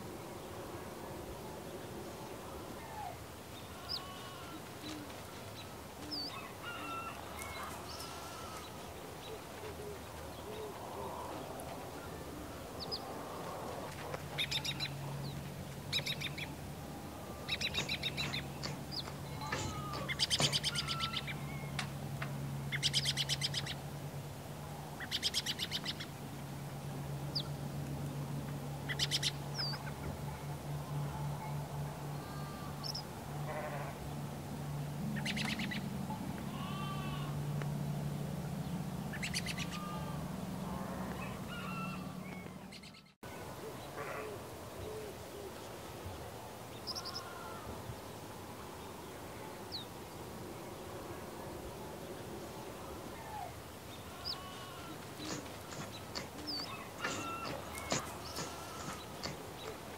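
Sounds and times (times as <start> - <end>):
harsh buzzy honking bird calls: 3.6 - 4.7, 6.6 - 8.9, 17.8 - 21.4, 36.5 - 37.4, 39.4 - 42.3, 53.9 - 59.9
birds chirping and whistling: 17.5 - 21.8, 55.3 - 59.8.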